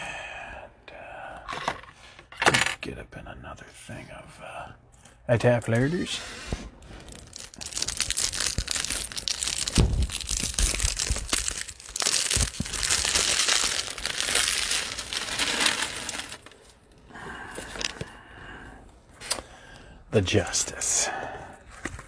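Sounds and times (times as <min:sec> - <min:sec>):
plastic wrapper crinkling and tearing: 0:07.0 - 0:16.8.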